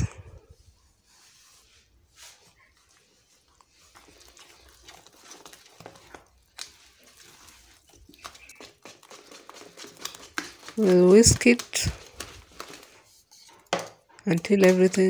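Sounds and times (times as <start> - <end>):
spatula squelching in batter: 0.1 - 15.0
spatula scraping and tapping bowl: 5.2 - 15.0.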